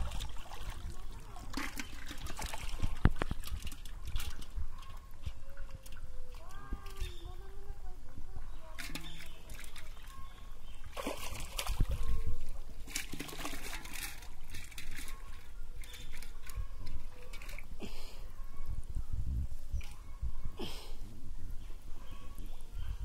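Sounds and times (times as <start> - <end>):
water sloshing and splashing: 0.0 - 7.2, 8.6 - 17.8.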